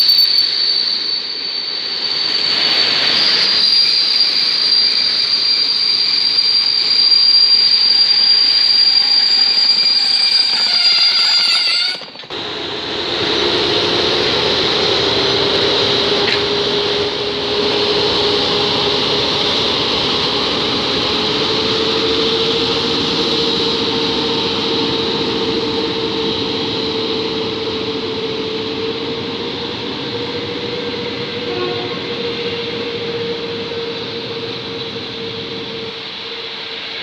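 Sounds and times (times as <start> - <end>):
train coaches rolling: 0.0 - 27.7
electric locomotive motor hum: 0.0 - 37.0.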